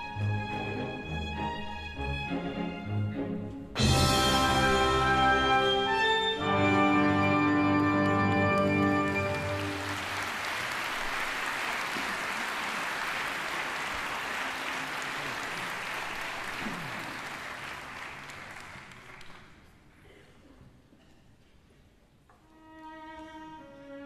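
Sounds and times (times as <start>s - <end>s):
audience applauding: 7.6s - 20.0s.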